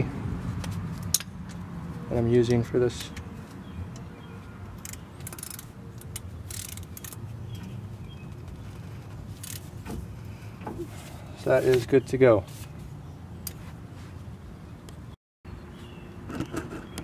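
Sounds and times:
gloved hands brushing metal: 10.8 - 12.8.

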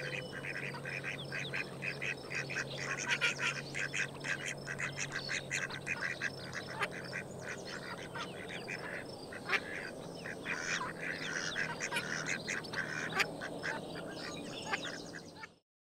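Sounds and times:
ducks quacking: 0.0 - 15.6.

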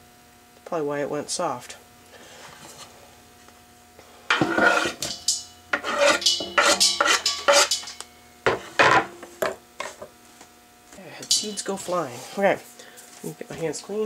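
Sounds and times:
scraping on wooden cutting board: 4.3 - 5.1, 5.7 - 7.9
pieces knocking into metal pot: 4.3 - 9.6.

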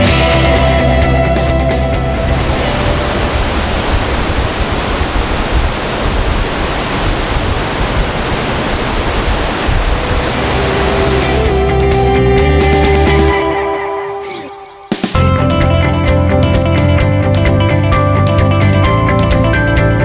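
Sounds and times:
river rushing through gorge: 2.1 - 12.2.

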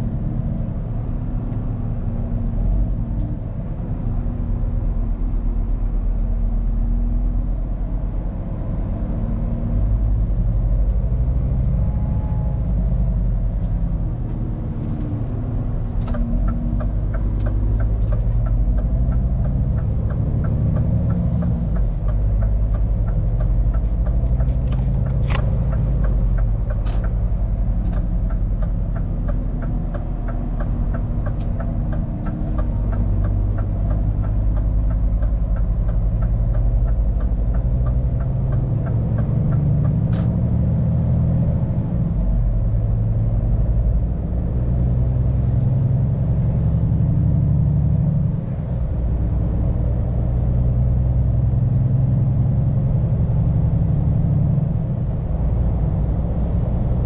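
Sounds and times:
road rumble: 0.0 - 57.0
truck diesel engine running: 0.0 - 57.0
regular ticking: 15.3 - 40.1.

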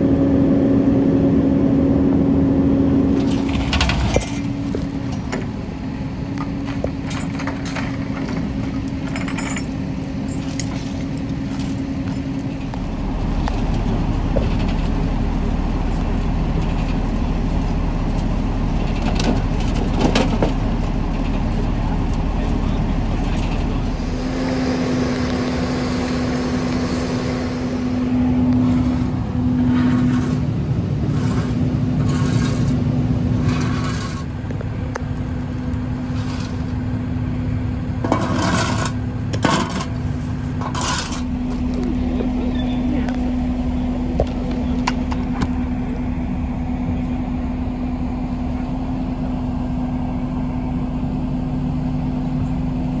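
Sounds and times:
truck engine idling: 0.0 - 53.0
scrapes: 28.6 - 34.4, 36.0 - 36.9, 38.0 - 41.7.

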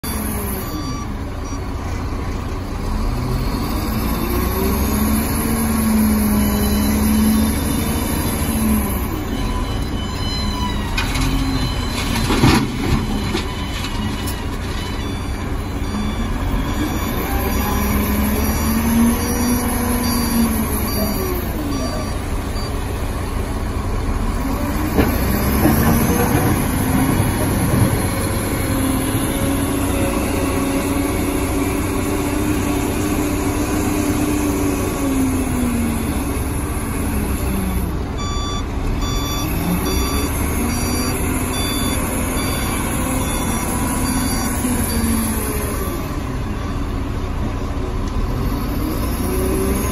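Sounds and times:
reversing alarm beeping: 0.0 - 1.8, 3.0 - 23.0, 24.8 - 33.0, 38.2 - 47.2
diesel engine revving under load: 2.6 - 13.7, 15.4 - 49.9.

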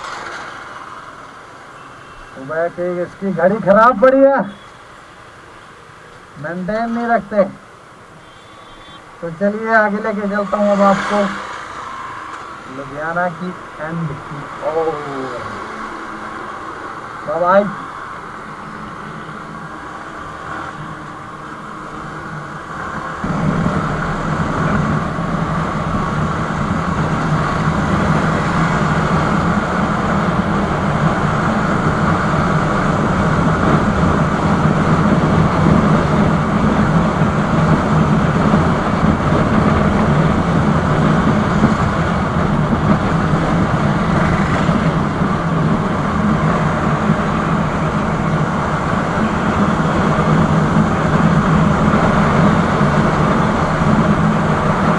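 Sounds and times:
motorcycle engine hum: 7.4 - 54.9
wind rushing over microphone: 9.1 - 54.9.

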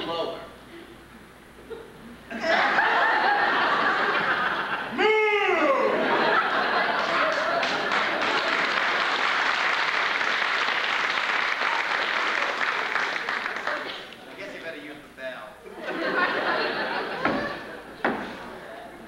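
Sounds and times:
audience laughing: 1.6 - 5.0, 5.7 - 9.2, 15.6 - 18.7
person whooping: 4.9 - 6.0
scattered clapping: 6.9 - 14.2.

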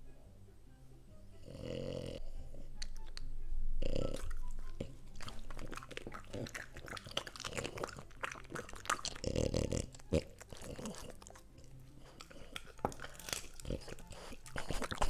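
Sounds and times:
dog crunching cucumber: 4.0 - 15.0.

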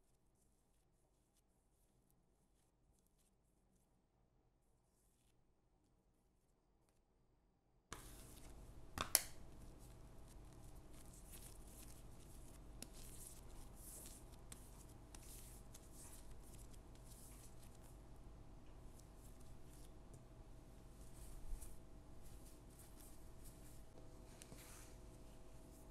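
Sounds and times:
dough rubbing and squishing: 0.0 - 7.1, 7.9 - 18.1, 18.8 - 20.0, 20.8 - 25.9
low steady hum: 8.0 - 25.9.

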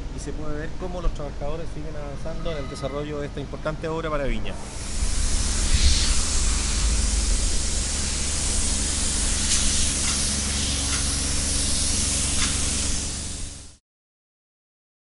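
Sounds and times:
wind noise on microphone: 4.6 - 10.9.

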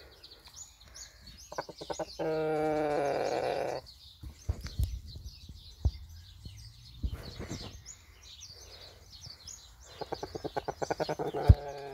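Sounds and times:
small birds chirping: 0.0 - 11.9
chicken clucking: 1.5 - 3.0, 9.9 - 11.9.

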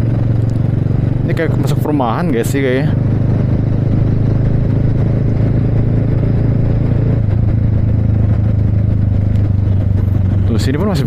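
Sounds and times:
motorcycle engine cruising: 0.0 - 11.0
road rumble: 0.0 - 11.0.

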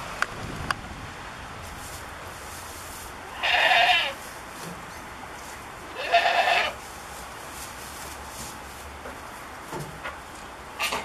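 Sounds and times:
goat bleating: 3.3 - 4.2, 5.9 - 6.8.

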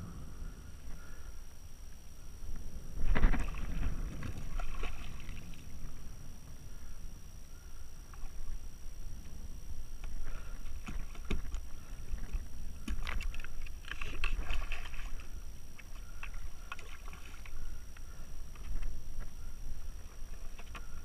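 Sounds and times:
wind rumble on microphone: 0.0 - 21.0
water splashing against kayak: 3.0 - 6.1, 10.0 - 21.0.

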